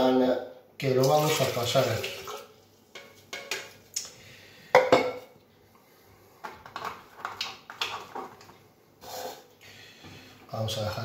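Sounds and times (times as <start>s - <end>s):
plastic cups knocking on countertop: 6.4s - 8.4s.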